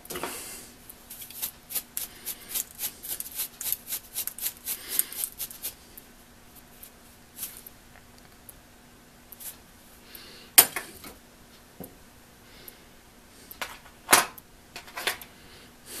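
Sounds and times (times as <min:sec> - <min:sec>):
stiff brush scrubbing: 0:01.1 - 0:05.9, 0:06.7 - 0:07.7.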